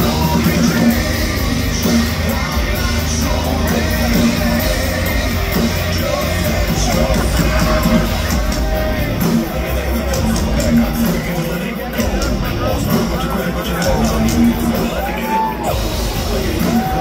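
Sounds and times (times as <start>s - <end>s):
live heavy metal band: 0.0s - 17.0s
sung and shouted vocals: 0.0s - 17.0s.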